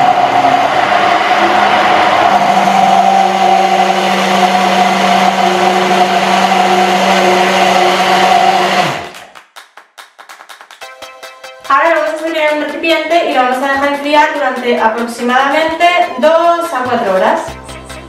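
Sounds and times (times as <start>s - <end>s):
hand blender running: 0.0s - 9.2s.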